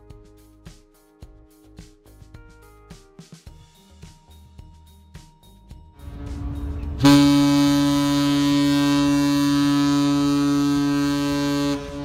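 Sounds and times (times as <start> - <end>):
low rumble: 6.0 - 7.6
ship horn blast: 6.0 - 12.0.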